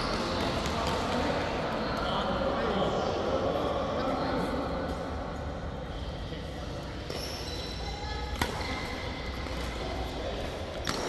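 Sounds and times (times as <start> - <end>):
racket hitting shuttlecock: 8.3 - 9.8, 10.7 - 11.0.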